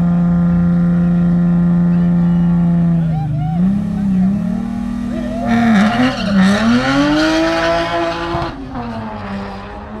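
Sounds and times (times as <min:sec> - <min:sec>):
car engine revving hard: 0:03.6 - 0:10.0
tyres squealing: 0:05.1 - 0:08.1.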